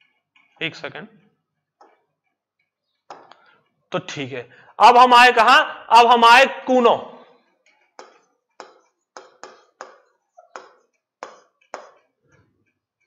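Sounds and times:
marker ticking on whiteboard: 7.5 - 13.0.

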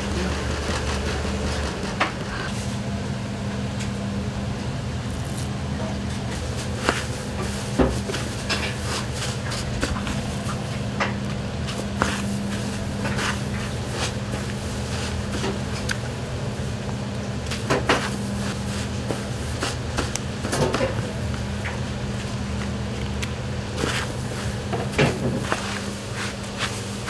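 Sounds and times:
steady low hum: 0.0 - 27.0
soft pats and rustles of breading: 11.3 - 16.0, 21.3 - 27.0.

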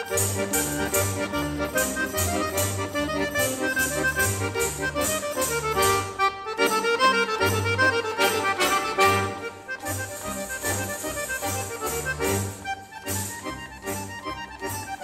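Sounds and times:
instrumental music with bass line: 0.0 - 15.0.

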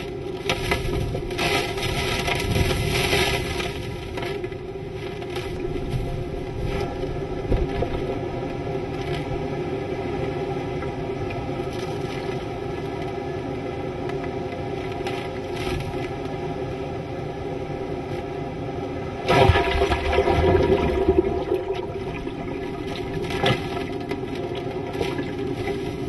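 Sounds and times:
hurricane wind: 0.0 - 26.0
wind buffeting microphone: 0.7 - 4.2.

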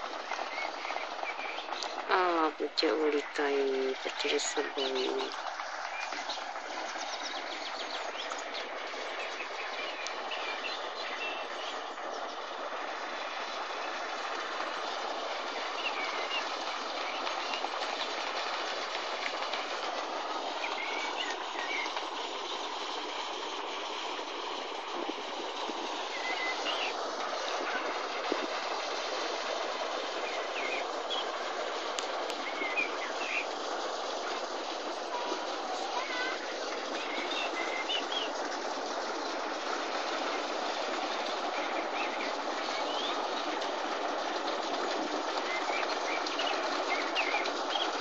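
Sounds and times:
small birds chirping: 0.2 - 12.5, 20.6 - 22.6, 30.2 - 31.4, 32.4 - 33.5, 35.9 - 38.4, 41.5 - 43.3, 45.4 - 48.0.

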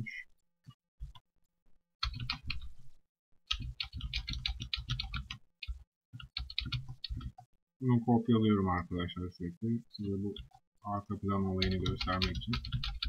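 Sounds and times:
computer keyboard keys clicking: 2.0 - 2.7, 3.5 - 7.4, 11.6 - 13.0.

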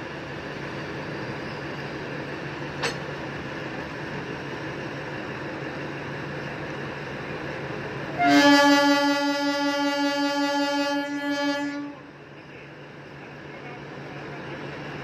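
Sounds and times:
locomotive hum: 0.0 - 15.0
locomotive horn blast: 8.2 - 12.1.

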